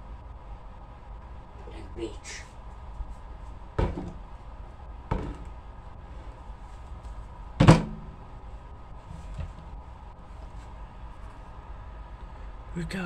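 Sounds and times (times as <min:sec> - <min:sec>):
dull thumps on a tabletop: 0:03.8 - 0:04.2, 0:05.1 - 0:05.5.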